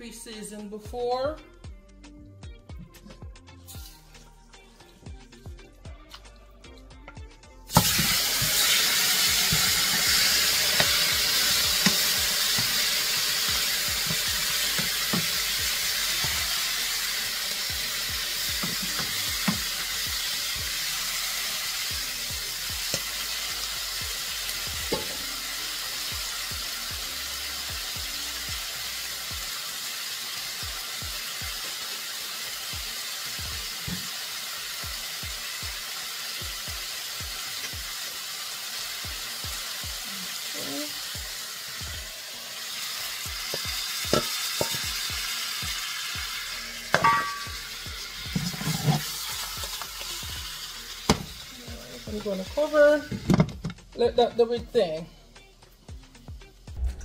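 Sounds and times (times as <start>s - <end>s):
oil popping and crackling: 7.7s - 20.1s, 43.4s - 45.3s, 46.9s - 52.4s
chicken sizzling in oil: 7.7s - 53.7s.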